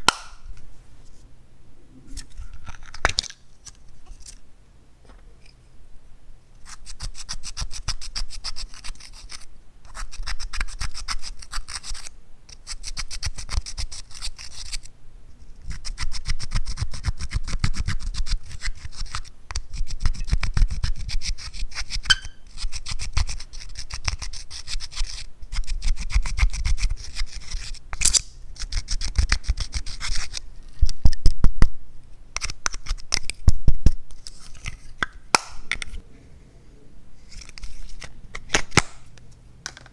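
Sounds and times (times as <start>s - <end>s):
tool scratching eyeshadow: 6.6s - 14.9s, 15.7s - 30.4s.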